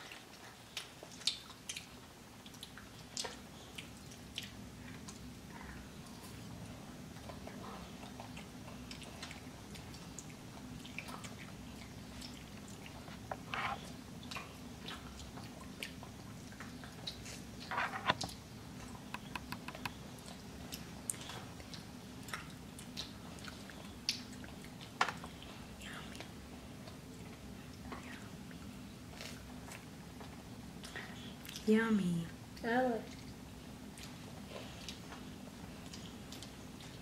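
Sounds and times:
children chewing food: 0:00.0 - 0:31.7, 0:32.3 - 0:37.0
steady low hum: 0:00.3 - 0:37.0
wet mouth clicks and smacks: 0:19.0 - 0:20.0.

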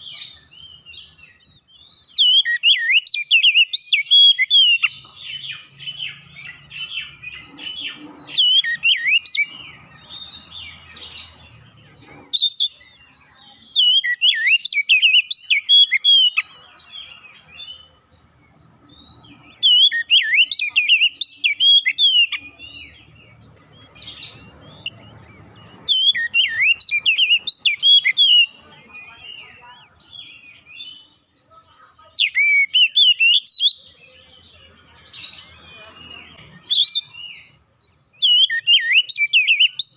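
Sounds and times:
bird singing whistled phrases: 0:01.9 - 0:05.0, 0:13.7 - 0:16.4, 0:19.6 - 0:22.6, 0:25.8 - 0:31.0, 0:32.2 - 0:33.9, 0:36.6 - 0:37.6, 0:38.2 - 0:39.9.

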